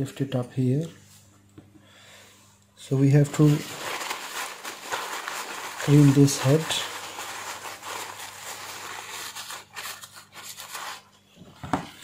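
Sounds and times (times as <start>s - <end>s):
tissue rubbing on metal blade: 3.3s - 11.1s.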